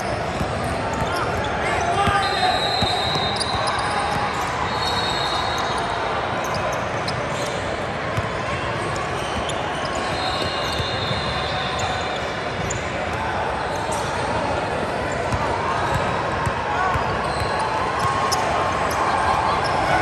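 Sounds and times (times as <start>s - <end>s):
echoing din of voices: 0.0s - 20.0s.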